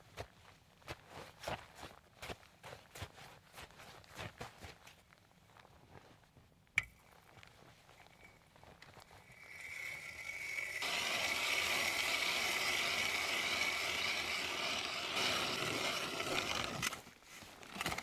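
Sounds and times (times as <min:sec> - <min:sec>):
ice auger grinding scrape: 0:09.2 - 0:17.1.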